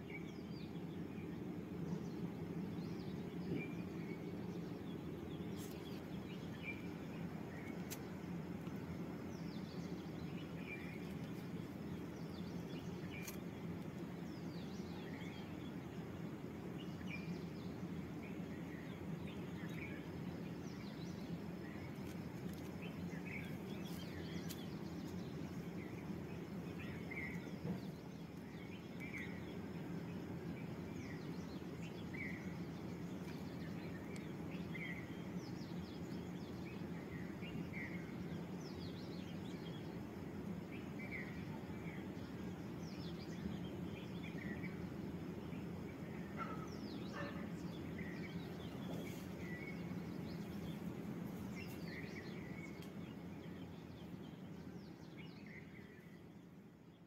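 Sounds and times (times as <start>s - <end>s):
low background hum: 0.0s - 57.0s
light scratchy ticks: 7.6s - 8.8s, 11.0s - 11.8s, 13.1s - 14.1s, 21.9s - 25.2s, 52.8s - 53.0s.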